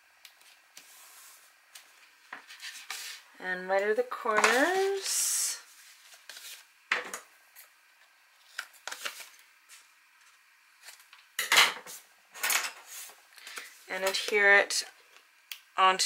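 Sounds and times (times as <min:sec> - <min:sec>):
card rustling: 0:05.8 - 0:06.7, 0:08.4 - 0:09.8
paper and tape handling: 0:05.8 - 0:06.7, 0:08.4 - 0:11.2.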